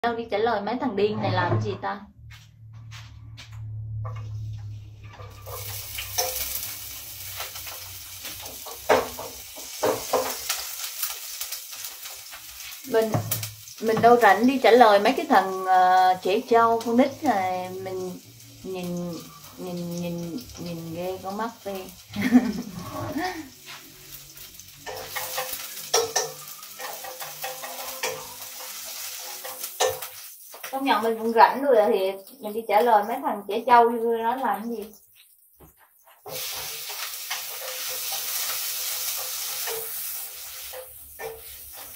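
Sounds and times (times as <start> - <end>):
low hum: 0.8 - 6.7
food sizzling in a pan: 4.4 - 41.9
utensils clacking against pan: 5.0 - 18.2, 18.8 - 33.2, 34.6 - 41.9
utensil clinking against pan: 24.8 - 28.7.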